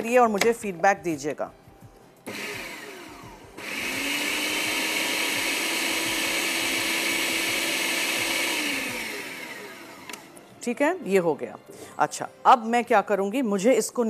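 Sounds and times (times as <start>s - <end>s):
electric blender motor: 2.3s - 10.3s.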